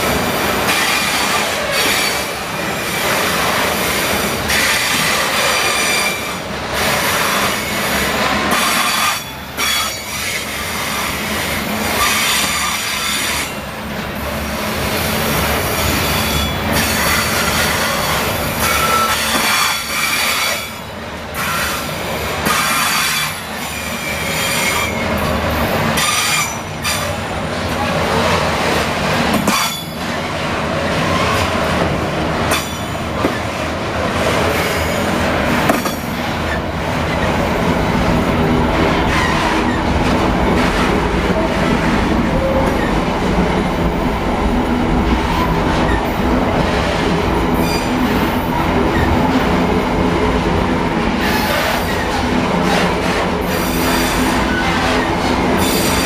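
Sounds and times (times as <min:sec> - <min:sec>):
freight train rolling past: 0:00.0 - 0:56.0.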